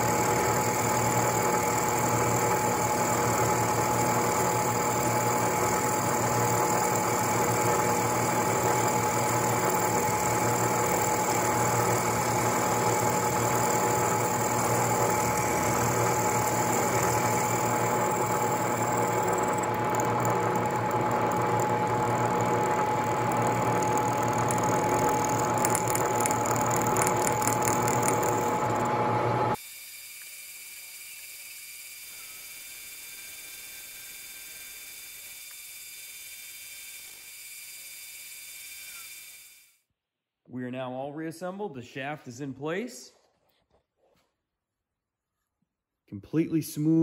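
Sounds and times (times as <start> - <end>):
milling machine cutting metal: 0.0 - 29.6.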